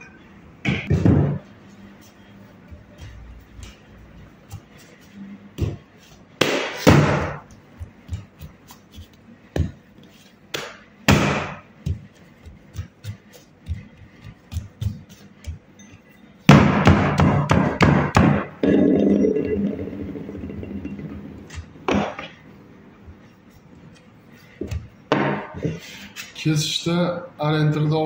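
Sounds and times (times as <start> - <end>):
dough slapped on wooden table: 10.5 - 12.0.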